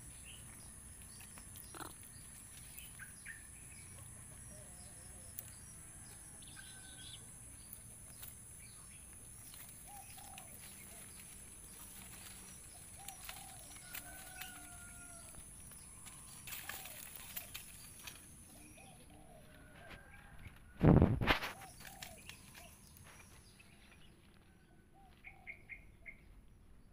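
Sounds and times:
light clicks and rustles: 9.1 - 18.4.

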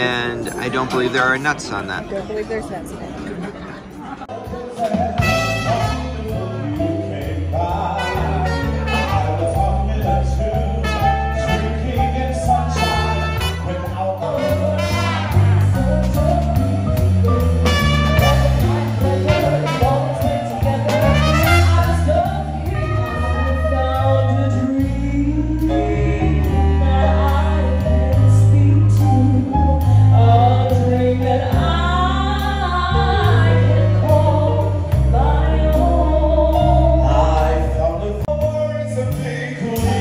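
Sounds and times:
drums: 4.2 - 40.0
trumpet: 4.8 - 6.9, 7.5 - 16.6, 17.3 - 27.8
saxophone: 5.0 - 6.9, 7.6 - 30.3
electric bass: 5.0 - 40.0
woman singing: 18.6 - 37.6.

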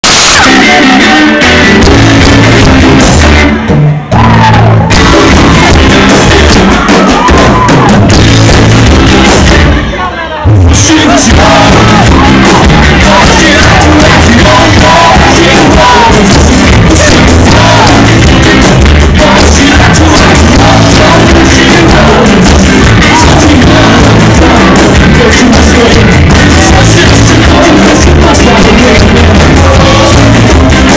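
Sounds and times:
bass guitar: 0.0 - 30.9
drums: 0.0 - 30.9
electric guitar: 0.0 - 30.9
person singing: 0.0 - 30.9.

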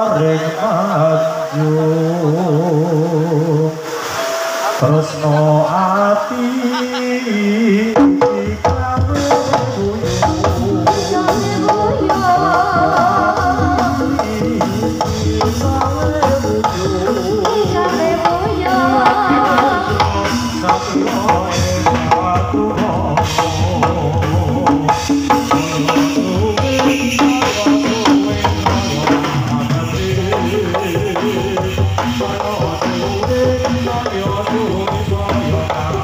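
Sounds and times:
gamelan ensemble playing: 3.8 - 7.3.

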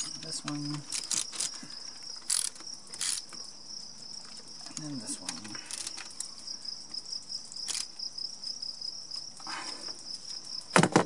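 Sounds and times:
insect trill: 0.0 - 11.0
ratchet scrape: 0.9 - 1.6, 2.2 - 3.3, 7.7 - 7.9.

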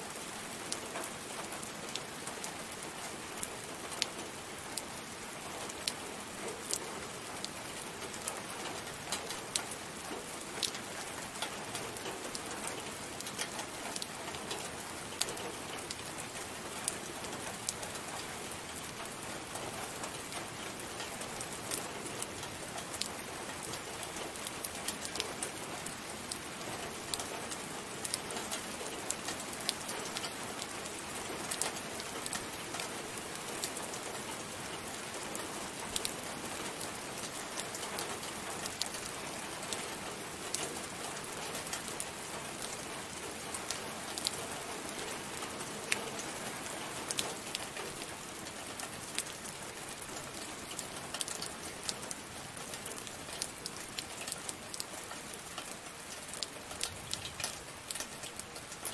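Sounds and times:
steady rain hissing: 0.0 - 58.9
raindrops ticking: 0.2 - 58.9.

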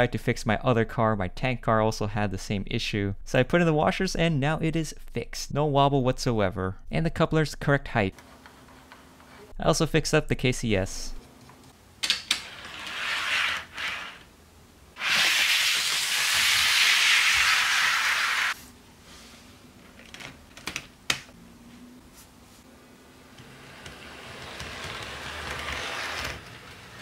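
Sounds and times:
model train wheels rolling on rails: 12.3 - 14.3, 15.0 - 18.6, 23.4 - 27.0.

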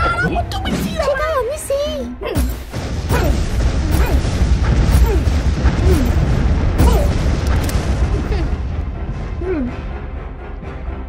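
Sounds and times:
music: 0.0 - 11.0
heavy low rumble: 2.2 - 11.0
booms and crashes: 2.4 - 9.6.

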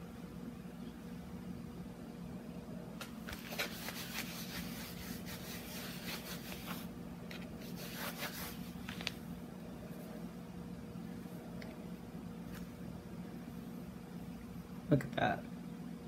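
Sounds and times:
canvas being scrubbed by hand: 3.4 - 6.9, 7.6 - 8.9.

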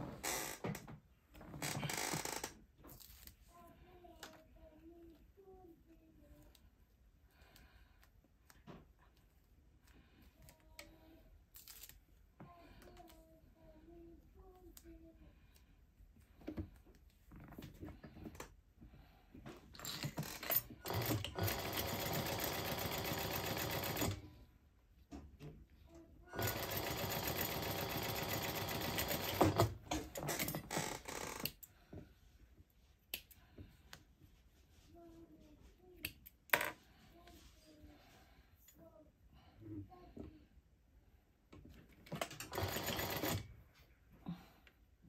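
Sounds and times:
sewing machine stitching: 19.8 - 24.3, 26.3 - 31.5, 42.1 - 43.5.

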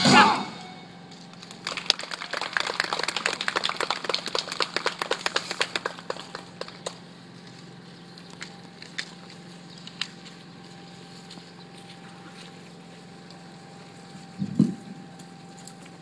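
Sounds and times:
audience clapping: 1.3 - 7.1.

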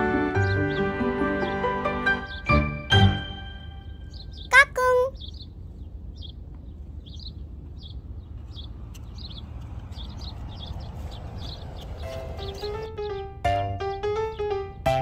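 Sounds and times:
low outdoor rumble: 3.6 - 14.9
small bird chirping: 3.8 - 13.3.

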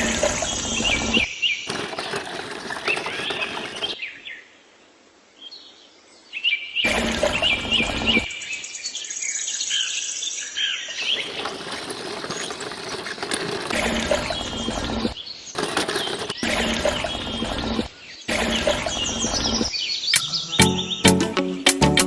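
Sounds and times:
birds chirping: 0.0 - 4.6, 5.4 - 21.6
steady outdoor hiss: 0.0 - 14.6.

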